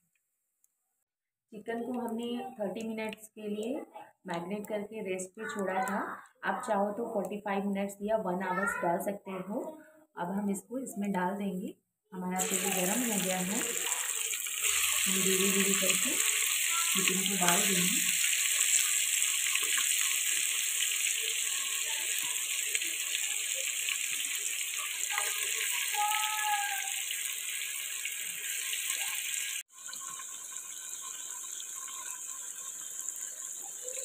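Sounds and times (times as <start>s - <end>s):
chicken sizzling in hot oil: 12.4s - 34.0s.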